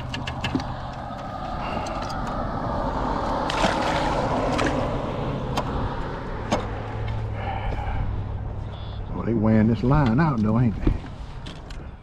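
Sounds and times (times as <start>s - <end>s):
water splashing and swirling: 0.6s - 7.3s.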